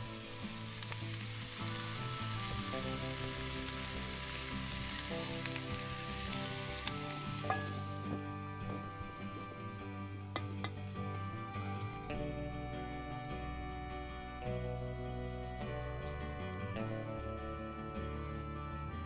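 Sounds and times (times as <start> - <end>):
food sizzling in a pot: 0.0 - 12.0
background music with held notes: 0.0 - 19.0.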